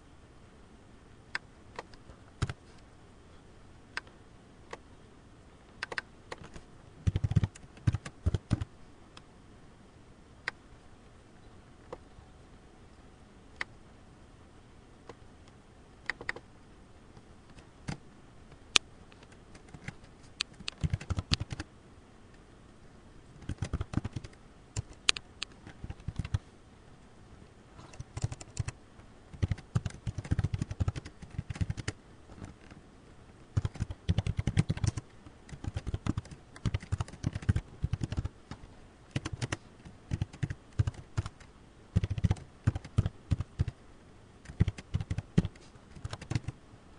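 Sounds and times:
typing on computer keyboard: 5.8 - 8.7, 16.1 - 16.4, 19.2 - 21.6, 23.4 - 26.4, 27.9 - 28.8, 29.4 - 32.0, 33.6 - 38.3, 39.1 - 43.8, 44.4 - 46.5.

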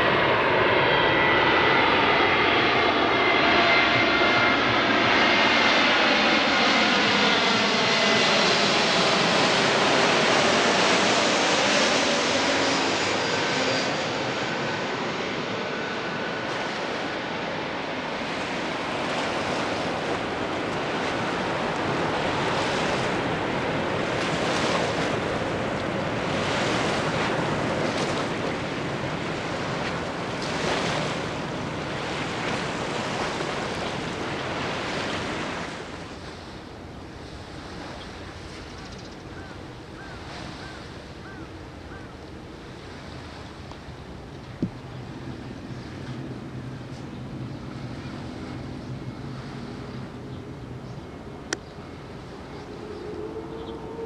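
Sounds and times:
jet plane passing overhead: 0.0 - 54.0.

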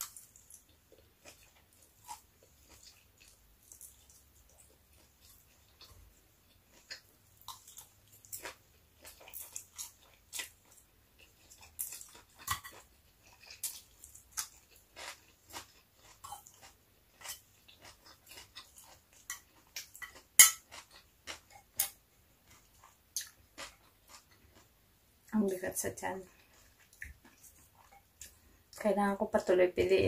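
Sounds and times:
wet chewing and mouth smacks: 0.0 - 24.8, 26.3 - 28.8.

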